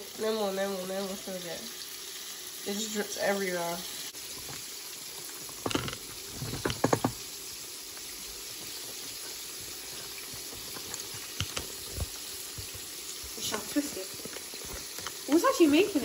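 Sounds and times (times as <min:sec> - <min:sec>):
chicken sizzling in oil: 0:00.0 - 0:16.0
sharp clicks and knocks: 0:05.5 - 0:07.3, 0:10.4 - 0:12.9.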